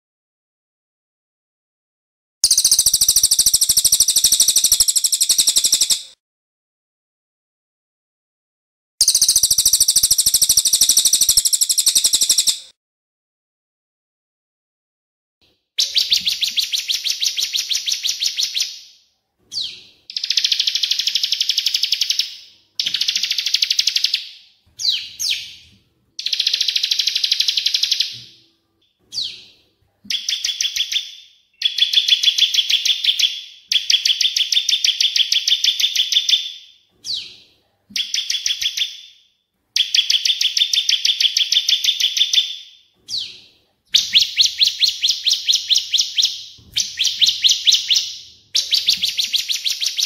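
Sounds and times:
songbird trilling: 2.4 - 6.0, 9.0 - 12.6.

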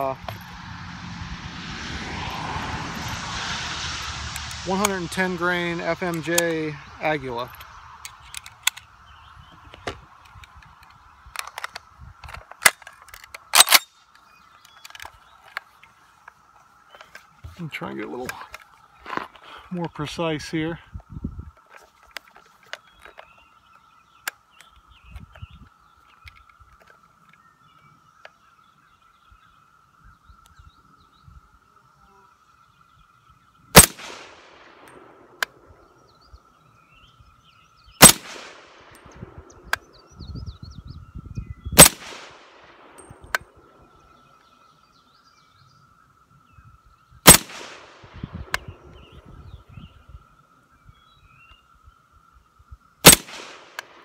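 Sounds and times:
rifle shots: 33.7 - 35.2, 38.0 - 39.1, 41.8 - 43.0, 47.2 - 48.6, 53.0 - 54.0
rifle click: 53.0 - 53.9.

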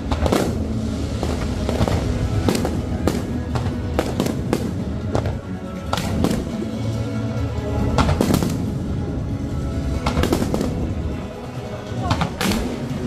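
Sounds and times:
fireworks bangs: 0.0 - 6.6, 7.9 - 8.9, 9.9 - 11.2
music playing: 0.0 - 13.0.

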